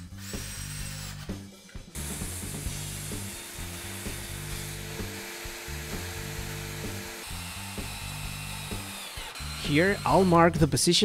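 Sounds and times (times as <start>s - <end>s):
table saw cutting plywood: 0.0s - 10.7s
background music: 0.0s - 11.0s.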